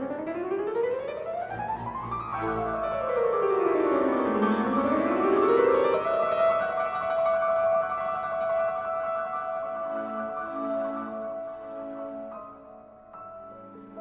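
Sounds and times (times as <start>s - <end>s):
classical piano music: 0.0s - 14.0s.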